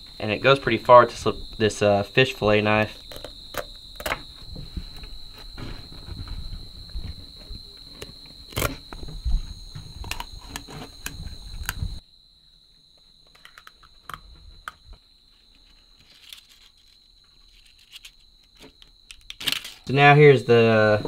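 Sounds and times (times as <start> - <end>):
night insects droning: 0.0 - 21.0
handling noise: 2.8 - 12.0.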